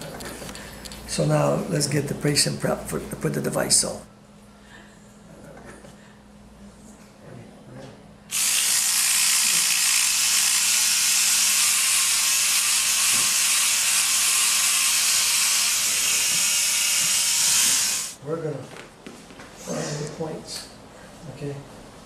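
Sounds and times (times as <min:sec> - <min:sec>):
electric hair trimmer running: 0:08.3 - 0:18.2.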